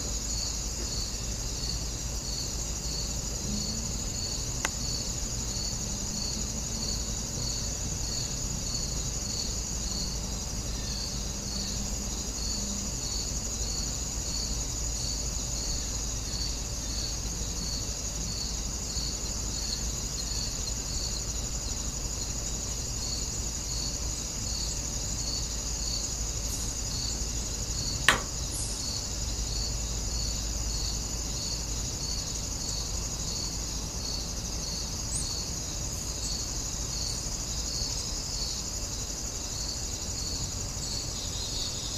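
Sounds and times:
insects chirping: 0.0 - 41.9
sharp click: 28.0 - 28.5.

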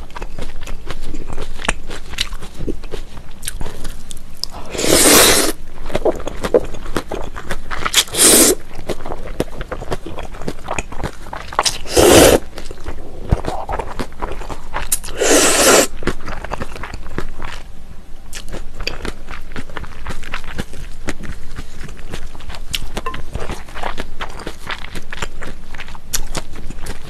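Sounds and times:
wet chewing: 0.0 - 17.7, 18.3 - 27.0
loud noodle slurps: 4.6 - 5.6, 7.9 - 8.6, 11.7 - 12.5, 15.0 - 15.9.

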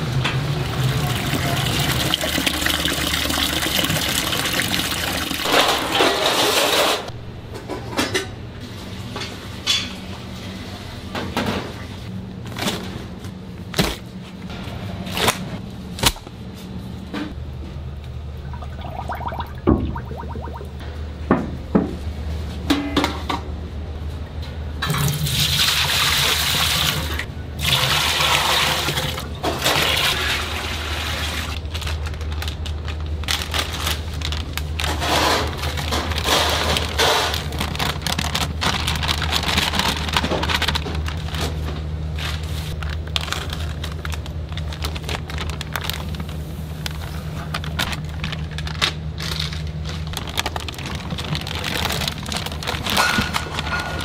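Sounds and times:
steady low hum: 7.1 - 24.8
plastic bag rustling: 31.6 - 54.0.

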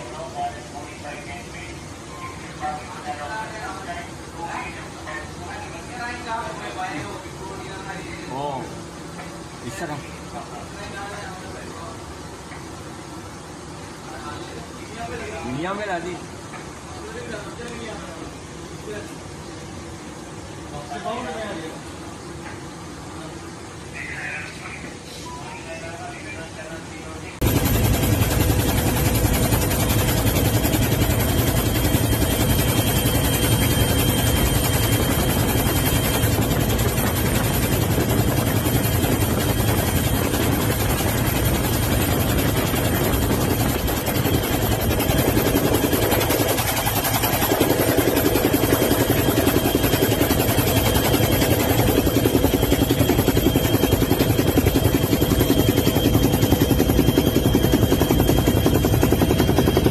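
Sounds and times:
helicopter rotor and engine drone: 0.0 - 25.0, 25.8 - 59.9
high whine: 27.4 - 59.9.

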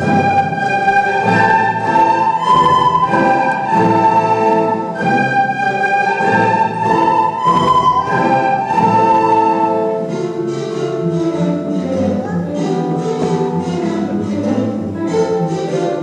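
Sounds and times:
recorder ensemble playing melody: 0.0 - 16.0.

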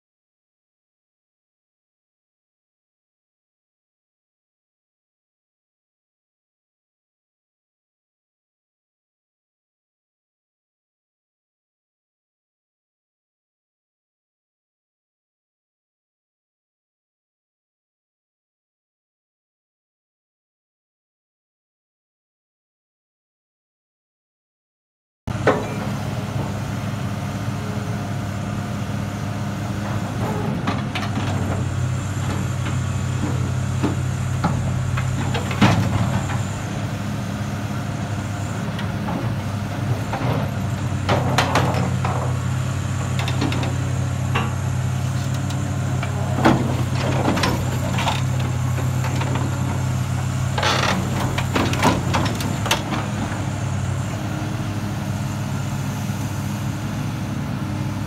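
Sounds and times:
diesel engine running under load: 25.3 - 58.0
steel creaking and screeching: 50.6 - 51.5.

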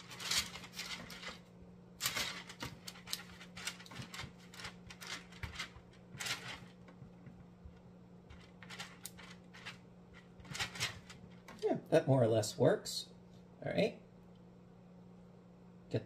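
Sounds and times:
spatulas scraping dough on paper: 0.0 - 1.4
faint low hum: 0.0 - 16.0.

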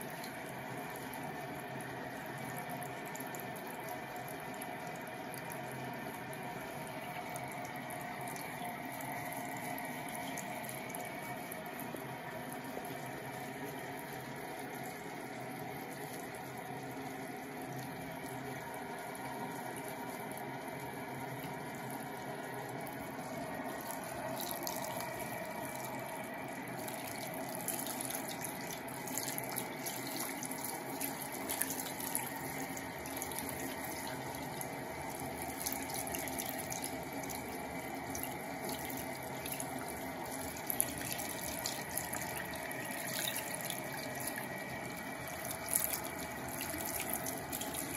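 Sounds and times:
water running from tap: 0.0 - 47.9
water splashing and dripping: 22.8 - 47.9.

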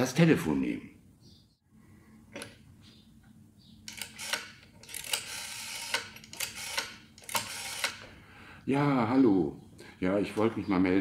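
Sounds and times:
rotary dial whirring: 3.8 - 8.2.

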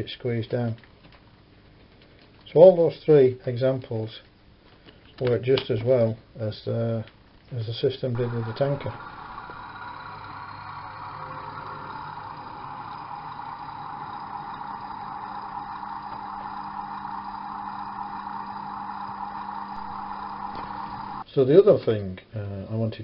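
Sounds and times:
diesel engine drone from speaker: 8.2 - 21.2
model train running: 8.2 - 21.2.

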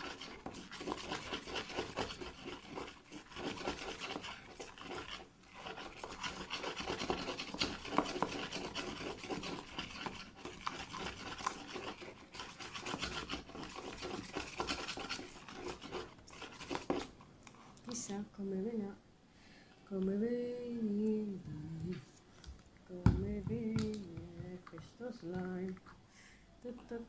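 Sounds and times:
utensil scraping plastic tub: 0.0 - 17.2.

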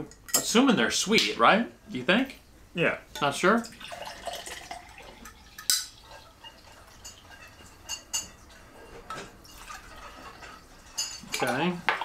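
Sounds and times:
drink pouring into a glass: 3.6 - 7.2.

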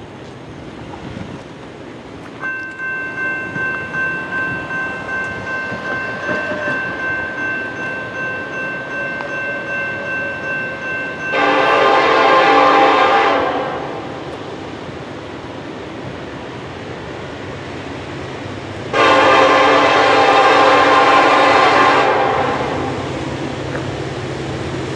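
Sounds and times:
railroad crossing bell ringing: 2.4 - 14.0, 18.9 - 23.0
train horn blast: 11.3 - 14.1, 18.9 - 23.0.

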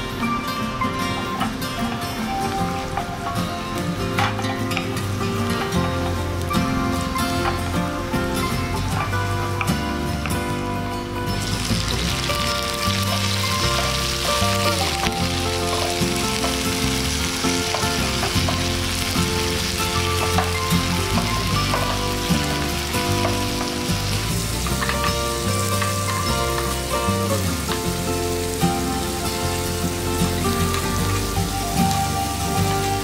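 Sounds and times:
background music: 0.0 - 33.0
shrimp sizzling in oil: 11.4 - 33.0.

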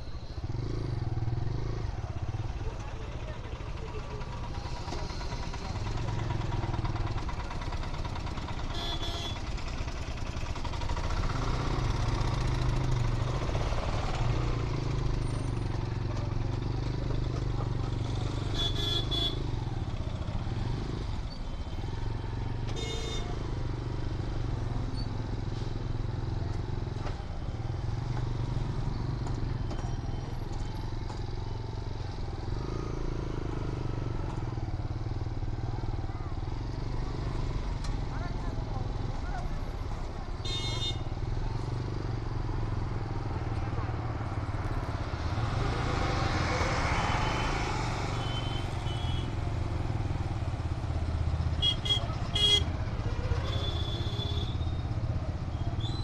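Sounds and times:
traffic noise: 0.0 - 56.0
motorcycle engine running: 0.1 - 56.0
vehicle horn toots: 8.7 - 9.4, 18.5 - 19.4, 22.8 - 23.3, 40.4 - 41.0, 51.6 - 52.7, 53.5 - 54.6.

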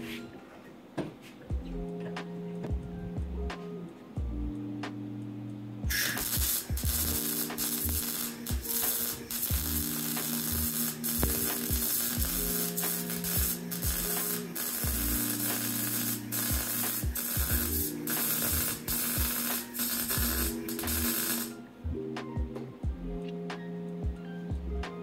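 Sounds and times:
background music: 0.0 - 25.0
welding arc crackling: 5.9 - 21.6.

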